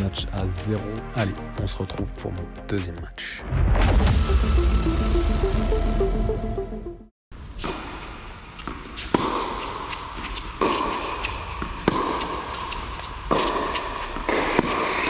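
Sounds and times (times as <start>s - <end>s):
tennis racket hitting ball: 7.6s - 15.0s.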